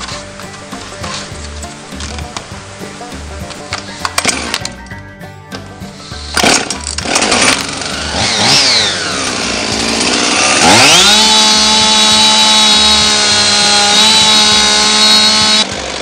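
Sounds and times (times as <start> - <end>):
chainsaw starting and revving: 4.2 - 4.6, 6.0 - 16.0.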